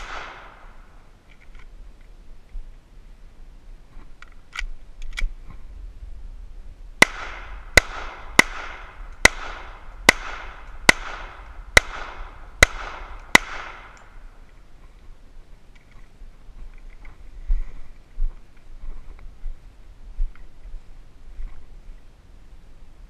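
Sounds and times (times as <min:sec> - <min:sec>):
pistol shots with echo: 0:00.0 - 0:00.8, 0:07.0 - 0:14.2.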